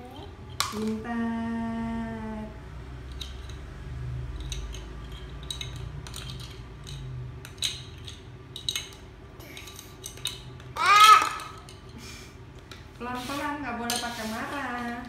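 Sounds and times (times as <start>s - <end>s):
toddler angry cry: 10.8s - 11.6s.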